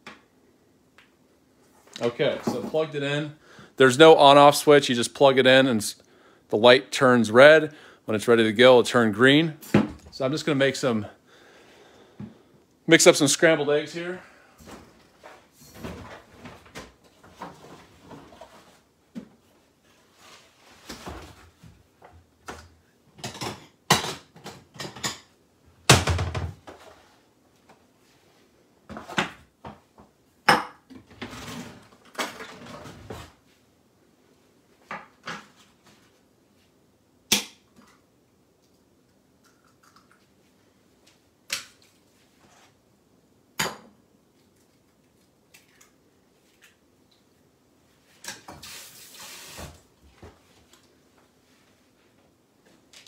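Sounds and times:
kitchen things clattering: 23.2 - 25.3.

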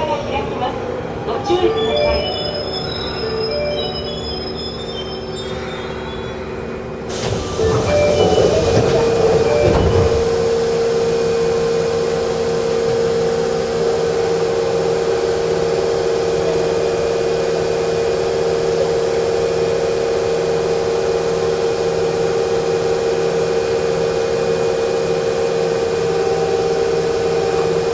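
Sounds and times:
subway train hum: 0.0 - 27.9
train knocks: 1.7 - 2.7, 7.0 - 13.4.

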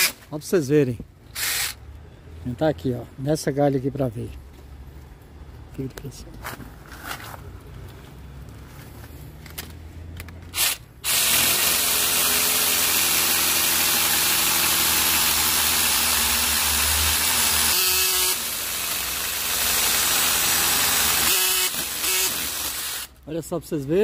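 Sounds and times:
mini chainsaw cutting wood: 10.5 - 23.1.

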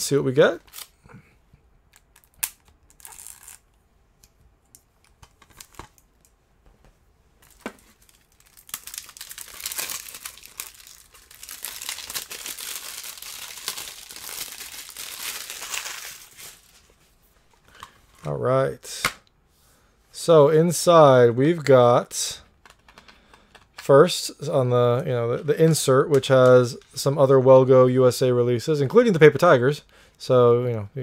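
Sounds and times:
plastic film crinkling and tearing: 7.4 - 16.9.

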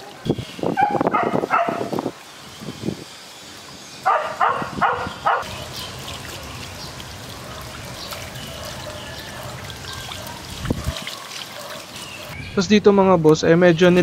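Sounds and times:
hose water splattering on ground: 5.5 - 12.2.

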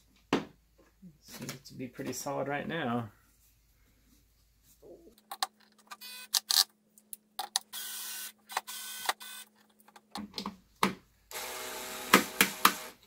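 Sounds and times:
cordless drill motor whine: 7.7 - 9.4, 11.3 - 13.0.

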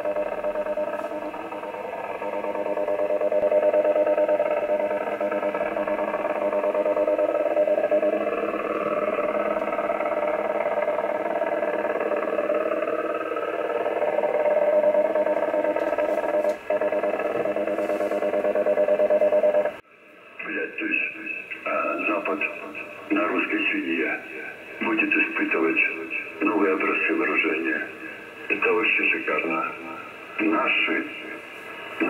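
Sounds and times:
radio receiver buzzing signal: 0.0 - 19.8, 20.4 - 32.0.

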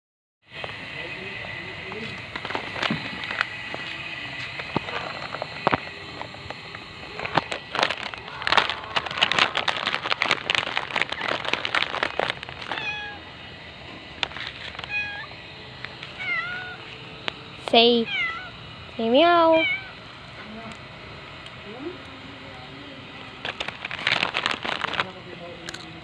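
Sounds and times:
dense crackling and rustling: 1.9 - 3.9, 4.5 - 13.2, 14.1 - 15.2, 23.4 - 25.4
cat meowing: 12.7 - 13.2, 14.8 - 15.3, 16.2 - 16.8, 18.0 - 18.5, 19.6 - 20.0.

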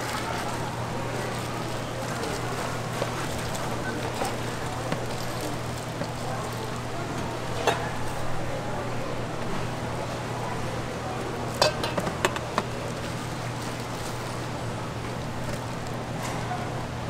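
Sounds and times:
metal bowl clinks: 11.6 - 12.5.

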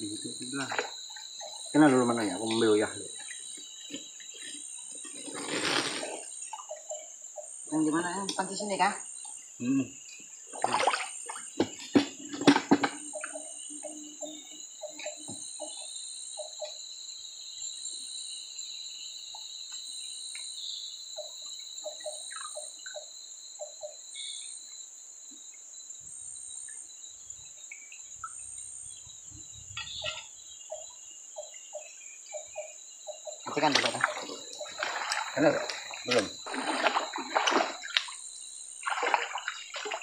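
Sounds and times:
high-pitched insect drone: 0.0 - 40.0
splashes: 0.5 - 1.0, 10.5 - 13.0, 33.5 - 40.0.

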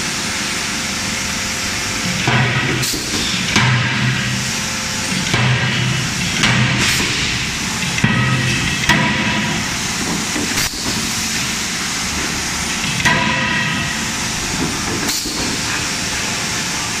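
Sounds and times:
loud machinery hiss: 0.0 - 17.0
ringing metal clank: 8.0 - 9.4.

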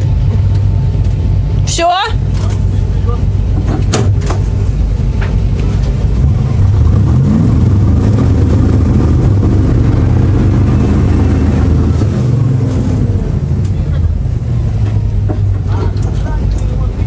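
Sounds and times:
engine revving loud: 6.0 - 15.9.

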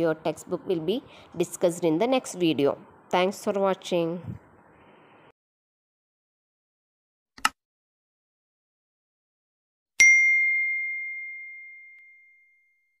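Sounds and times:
notification bell ding: 10.0 - 13.0.

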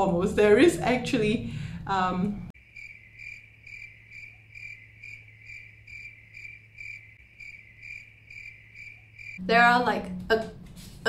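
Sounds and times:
cricket chirping: 2.6 - 9.4.

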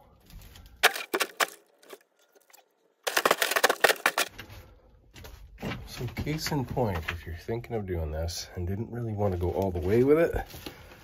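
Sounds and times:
rustling and clicking handling noise: 0.1 - 7.4.

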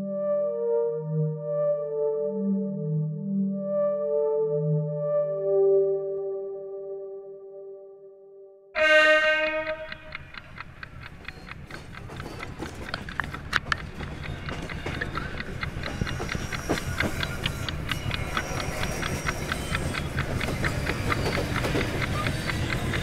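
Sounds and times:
train rumbling: 8.8 - 23.0
train wheels clacking: 8.8 - 23.0.

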